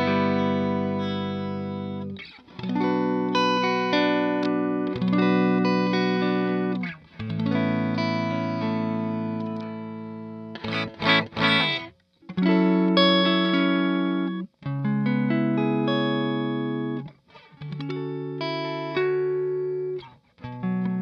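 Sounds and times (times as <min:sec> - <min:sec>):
choppy guitar strums: 0:00.0 - 0:21.0
electric guitar chords ringing: 0:00.0 - 0:21.0.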